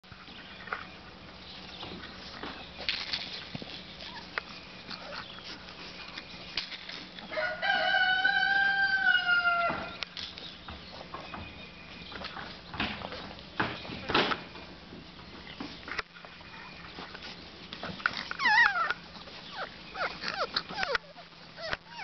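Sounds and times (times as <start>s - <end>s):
rooster crowing: 7.3s - 10.0s.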